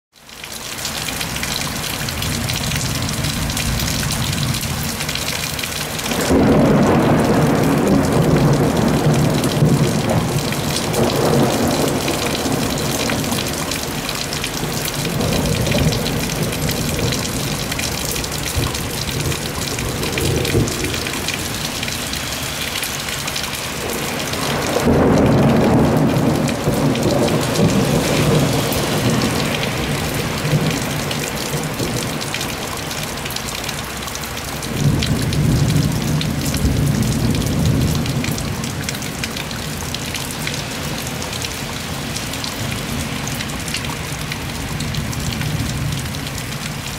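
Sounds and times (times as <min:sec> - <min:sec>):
heavy rain pouring: 0:00.1 - 0:46.9
rolling thunder: 0:06.1 - 0:22.0, 0:23.7 - 0:32.8, 0:34.7 - 0:39.0.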